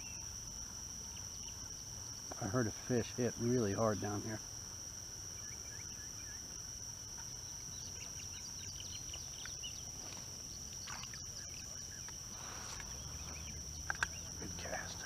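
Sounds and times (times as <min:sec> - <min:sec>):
high-pitched insect drone: 0:00.0 - 0:15.0
bird chirps: 0:10.5 - 0:15.0.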